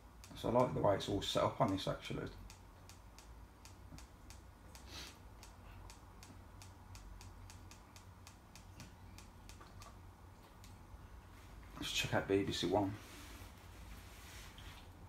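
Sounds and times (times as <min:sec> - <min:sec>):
remote buttons clicking: 0:02.4 - 0:10.8.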